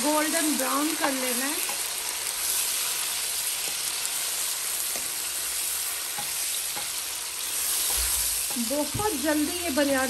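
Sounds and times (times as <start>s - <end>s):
chicken sizzling in hot oil: 0.0s - 10.0s
wooden spoon knocking in pan: 7.8s - 10.0s.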